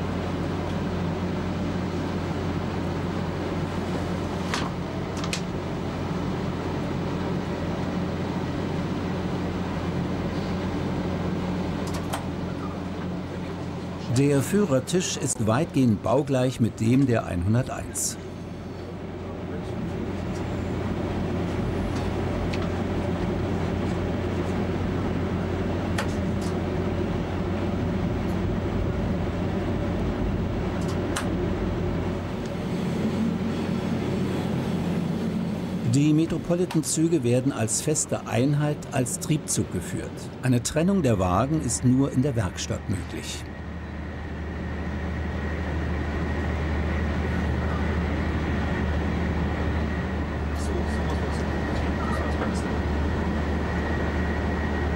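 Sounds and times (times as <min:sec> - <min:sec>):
passing train: 0:00.0 - 0:54.9
train rumbling on track: 0:00.0 - 0:54.9.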